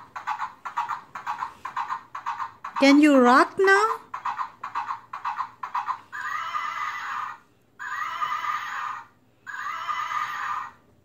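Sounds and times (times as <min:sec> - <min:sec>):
hooves clip-clopping: 0:00.0 - 0:06.0
horse neighing: 0:05.8 - 0:10.8.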